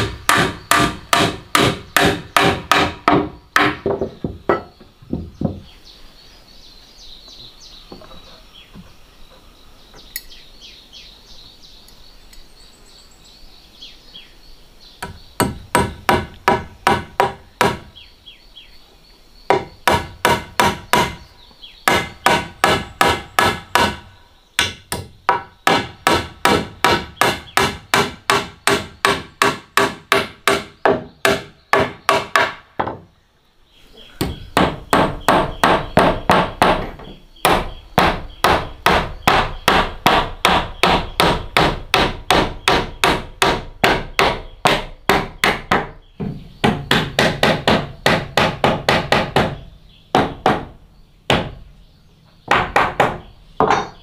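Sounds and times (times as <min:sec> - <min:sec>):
hammer driving nails into wood: 0:00.0 - 0:05.2.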